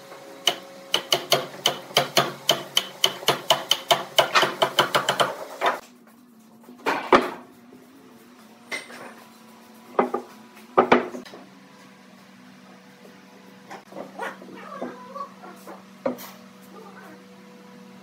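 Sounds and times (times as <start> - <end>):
wood knocking on workbench: 10.0 - 11.2.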